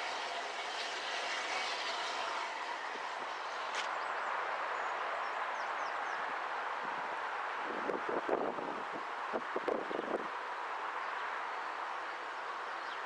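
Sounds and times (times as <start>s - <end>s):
distant steam locomotive rushing: 0.0s - 4.7s.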